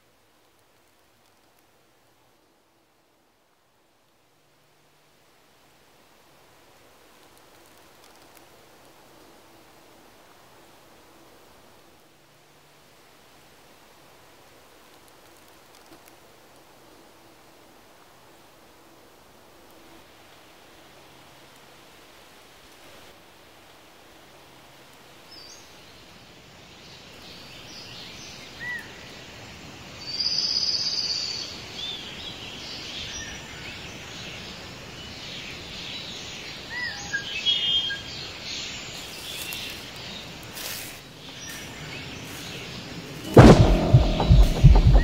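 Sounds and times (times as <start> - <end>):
sharp clicks: 7.2 - 9.0
loud high buzz: 43.3 - 45.0
loud low hit: 43.3 - 45.0
music: 43.3 - 45.0.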